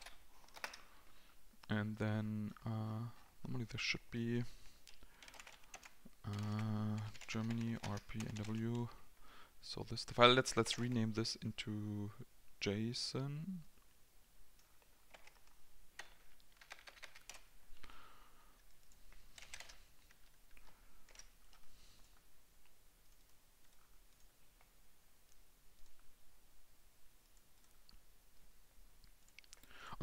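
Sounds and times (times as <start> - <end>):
keyboard typing clicks: 0.0 - 0.8, 4.9 - 8.8, 14.6 - 17.5.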